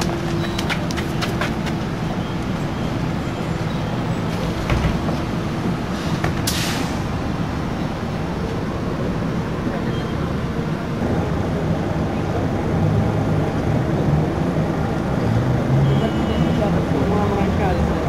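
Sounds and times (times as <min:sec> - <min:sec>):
bus engine rumble: 0:00.0 - 0:18.0
street traffic: 0:00.0 - 0:18.0
short burst of hiss: 0:06.0 - 0:07.0.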